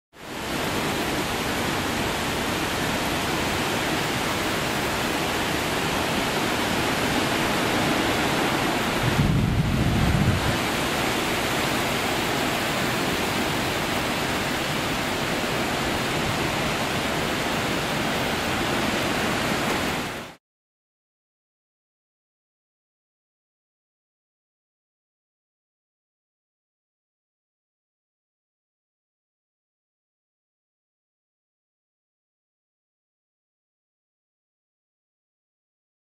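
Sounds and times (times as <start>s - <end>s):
heavy rain: 0.2s - 20.4s
wind buffeting microphone: 7.7s - 14.0s.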